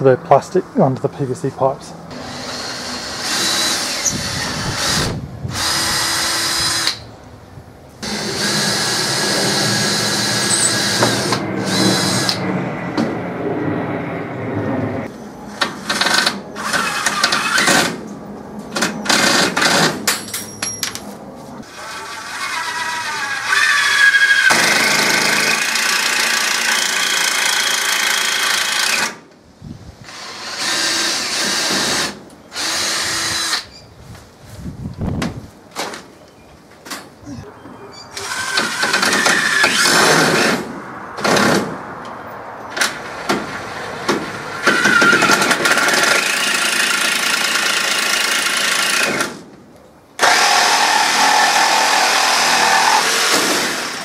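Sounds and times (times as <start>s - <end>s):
power drill drilling into wood: 2.1s - 7.0s, 30.1s - 33.7s, 38.2s - 40.6s, 44.6s - 49.4s, 50.2s - 54.0s.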